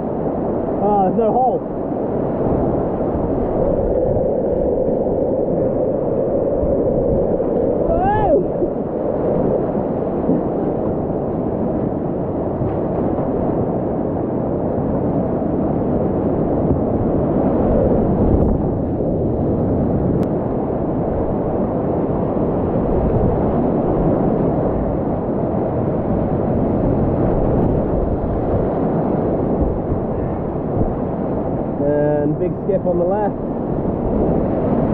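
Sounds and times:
river rapids roaring: 7.6s - 8.8s.

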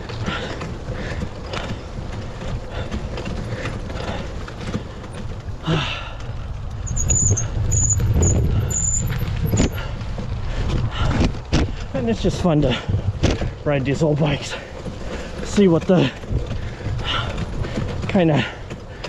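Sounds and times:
mountain bike rumbling on dirt: 0.0s - 19.0s
short high squeaks: 6.9s - 9.8s.

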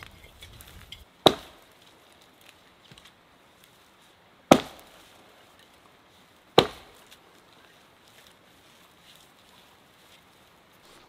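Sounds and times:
axe chopping tree trunk: 1.2s - 1.7s, 4.5s - 4.9s, 6.5s - 7.2s.

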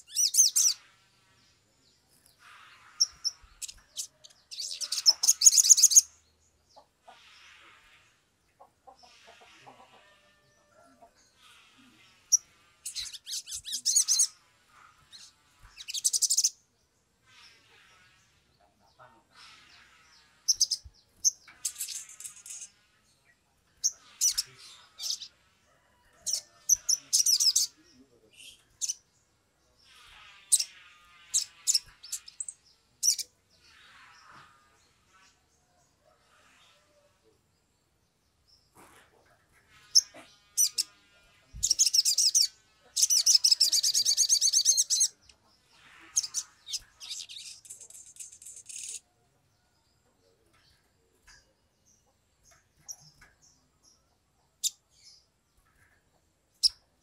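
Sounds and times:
bird chirping and trilling: 0.0s - 1.0s, 2.0s - 7.6s, 11.3s - 16.6s, 19.5s - 22.9s, 23.8s - 25.4s, 26.3s - 29.1s, 29.8s - 34.3s, 39.8s - 49.1s.

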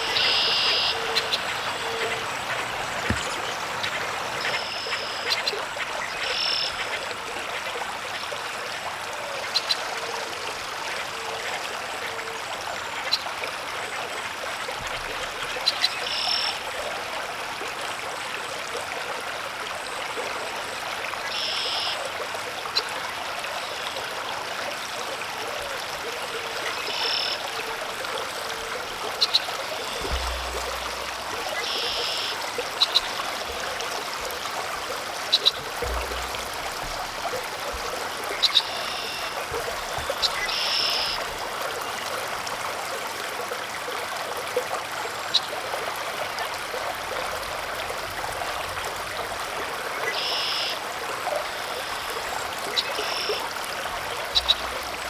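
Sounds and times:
low frog croaks: 28.8s - 41.3s.

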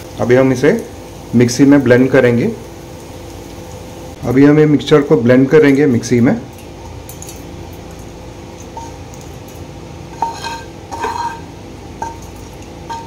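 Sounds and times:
steady background hum: 0.0s - 13.0s
spatula scraping frying pan: 10.1s - 12.3s.

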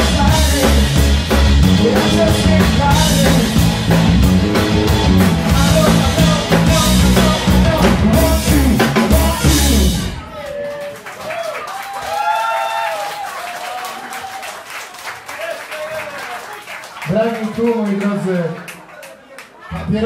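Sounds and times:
man singing: 0.0s - 4.1s, 5.1s - 10.2s
live rock band playing: 0.0s - 10.6s.

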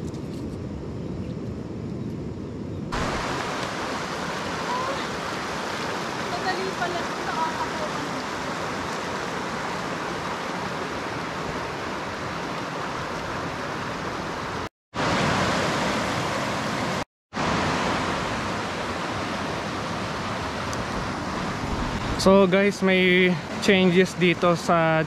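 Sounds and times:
river rushing over rocks: 3.0s - 22.4s.

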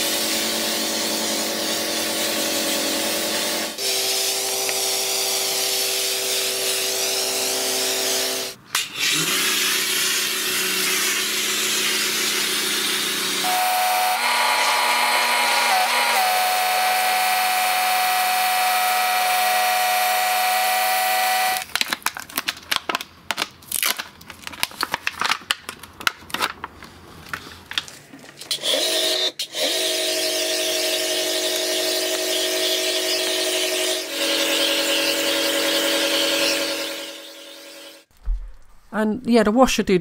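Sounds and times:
pressure washer pump whining: 0.0s - 21.6s, 28.5s - 38.0s.

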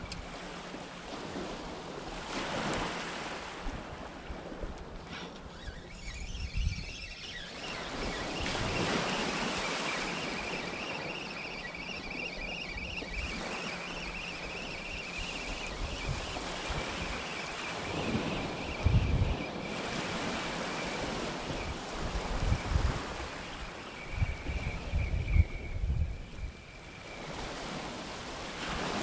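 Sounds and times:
gentle surf: 0.0s - 29.0s
wind buffeting microphone: 0.0s - 29.0s
faint high warbling whistle: 5.5s - 27.4s.

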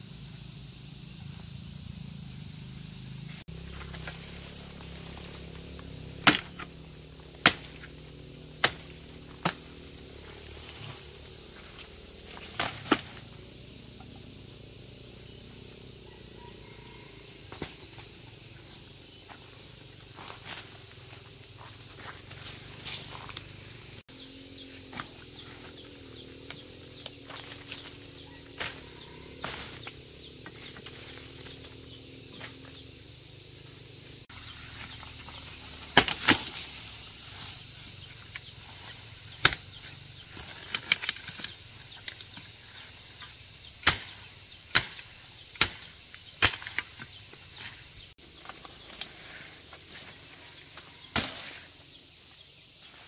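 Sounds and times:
insects chirring: 0.0s - 53.0s
knife chopping sugar cane: 6.2s - 6.7s, 7.4s - 7.9s, 43.8s - 45.0s.

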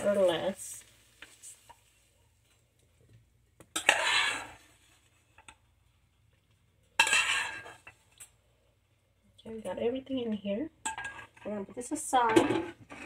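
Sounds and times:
spatula scraping a frying pan: 3.7s - 5.5s, 7.0s - 8.1s, 10.8s - 13.0s.

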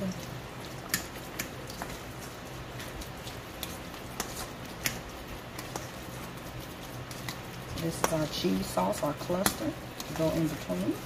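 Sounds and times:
steady low hum: 0.0s - 11.0s
wet mixing in bowl: 0.0s - 11.0s
utensil clicking against bowl: 9.3s - 10.4s.

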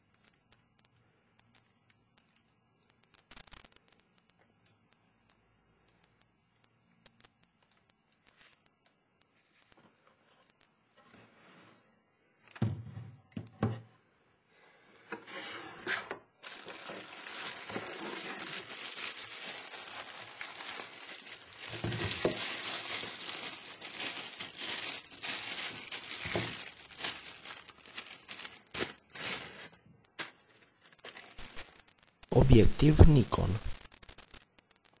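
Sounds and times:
plastic wrapping crinkling: 0.0s - 4.4s, 15.8s - 32.2s.

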